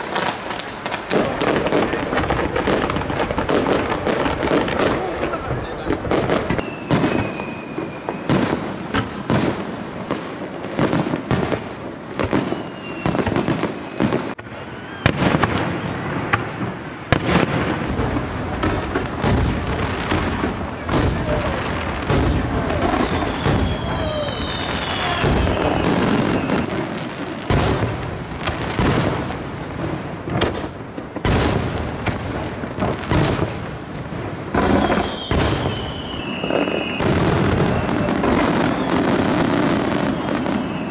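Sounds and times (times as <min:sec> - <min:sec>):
firework whistles falling in pitch: 0:00.0 - 0:01.6, 0:04.8 - 0:10.2, 0:12.2 - 0:27.9, 0:34.5 - 0:40.9
firework crackles: 0:00.0 - 0:40.9
firework shells bursting: 0:00.0 - 0:40.9.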